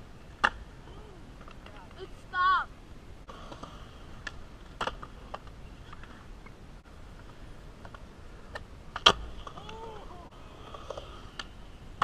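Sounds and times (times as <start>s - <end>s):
faint outdoor hiss: 0.0s - 12.0s
skateboards clacking on concrete: 1.4s - 2.1s, 3.3s - 12.0s.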